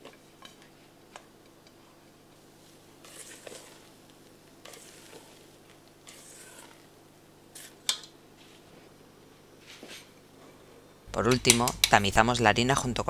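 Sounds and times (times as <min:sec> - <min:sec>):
spatula swishing through batter: 0:02.5 - 0:07.8.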